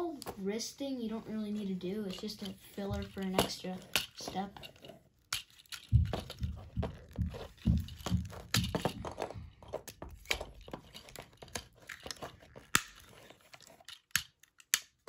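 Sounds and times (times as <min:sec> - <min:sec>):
plastic toy parts clicking: 0:02.1 - 0:09.0, 0:09.8 - 0:15.0
dull thumps: 0:05.8 - 0:10.5.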